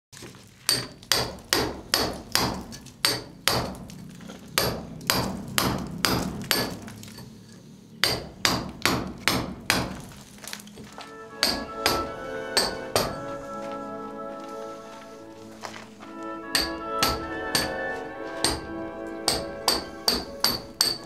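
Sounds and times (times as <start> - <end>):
hammer blows ringing: 0.7 - 4.0, 4.6 - 6.9, 8.0 - 10.0, 11.0 - 13.7, 15.6 - 21.0.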